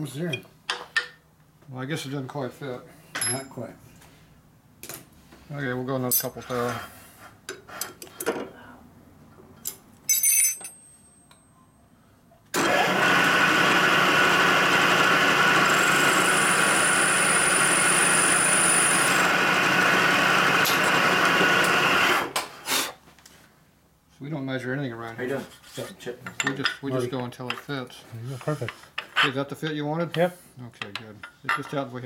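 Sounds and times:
metallic clinks: 9.6 - 11.8
milling machine cutting steel: 12.6 - 22.0.

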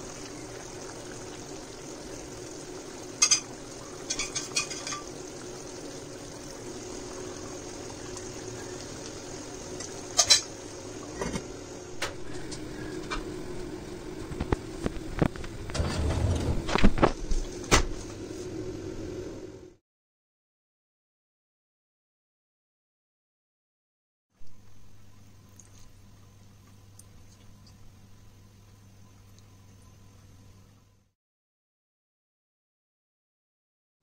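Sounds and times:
stew simmering hiss: 0.0 - 15.6.

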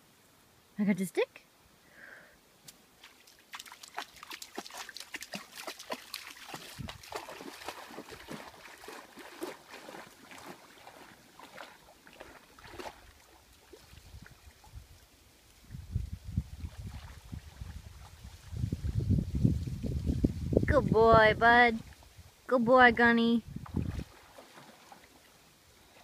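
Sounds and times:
dog splashing through water: 3.0 - 14.7, 16.6 - 18.4, 23.6 - 25.4.

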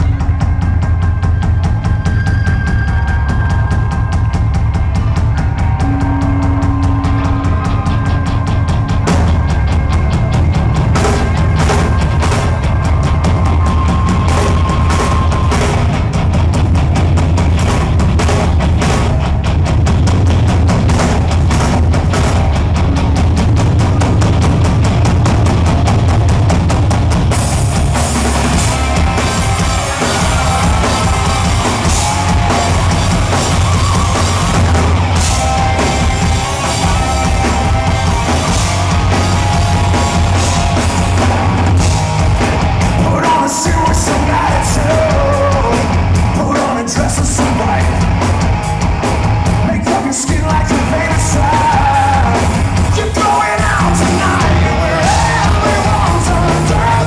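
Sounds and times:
rock band playing: 0.0 - 57.0
man singing: 42.9 - 48.1, 49.6 - 57.0.

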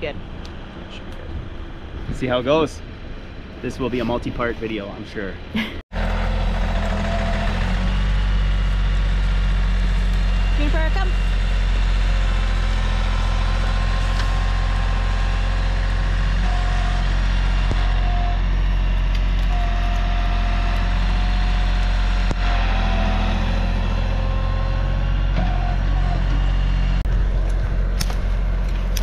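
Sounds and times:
tractor engine running under load: 5.9 - 29.0.

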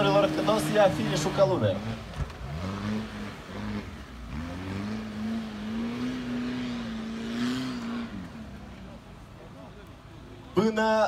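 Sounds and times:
diesel engine revving under load: 0.0 - 8.6.

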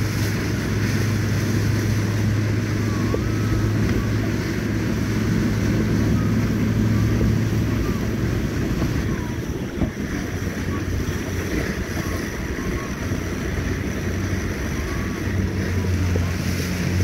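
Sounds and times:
outboard motor humming: 0.0 - 17.0
water washing along hull: 0.0 - 17.0
wind buffeting microphone: 0.0 - 17.0.

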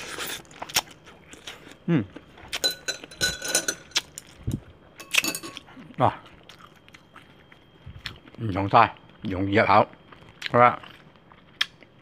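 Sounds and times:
tableware clinking: 2.6 - 4.3, 5.0 - 5.7.

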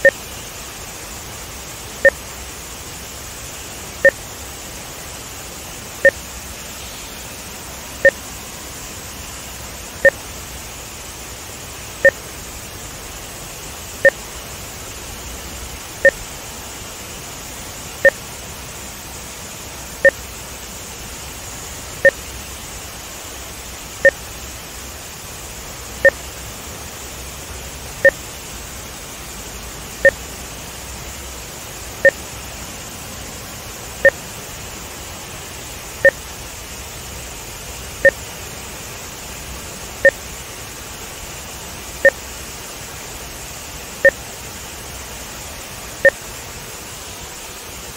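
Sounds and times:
two-tone electronic beeps: 0.0 - 0.2, 8.0 - 8.2, 10.0 - 10.2, 26.0 - 26.2.

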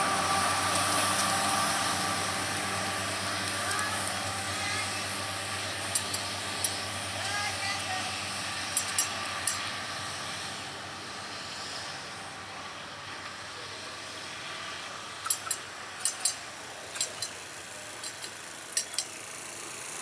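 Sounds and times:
wheels clicking over rail joints: 0.0 - 9.8, 14.8 - 20.0
train rolling noise: 0.0 - 20.0.

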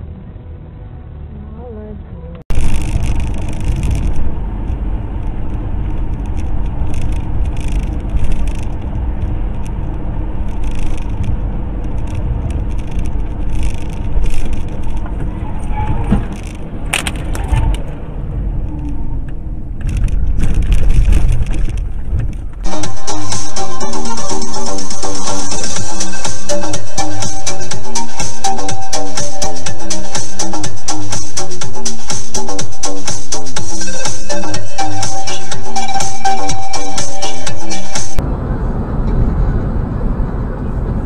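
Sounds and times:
car road and engine rumble: 0.0 - 41.0
light rattling: 2.5 - 18.0.

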